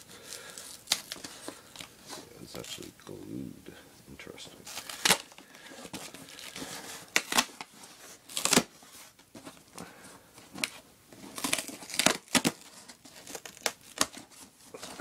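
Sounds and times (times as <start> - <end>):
cardboard rustling: 4.6 - 15.0.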